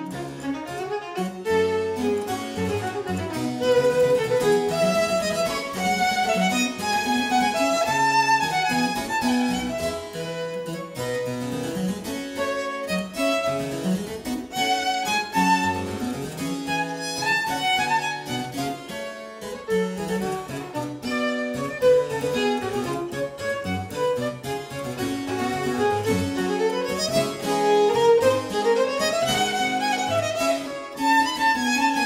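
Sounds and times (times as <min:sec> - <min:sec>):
violin playing quick lines: 0:00.0 - 0:11.5, 0:14.5 - 0:16.1, 0:16.7 - 0:32.0
harpsichord accompaniment: 0:00.0 - 0:32.0.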